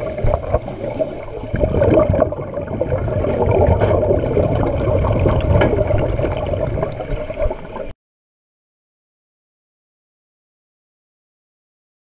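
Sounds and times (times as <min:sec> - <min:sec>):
bubbles crackling: 0:00.0 - 0:07.9
underwater water rushing: 0:00.0 - 0:07.9.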